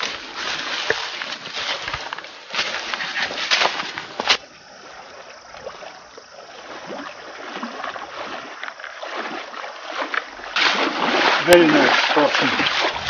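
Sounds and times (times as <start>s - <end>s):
footsteps crunching dry leaves: 0.0s - 4.5s
people wading through water: 0.0s - 13.0s.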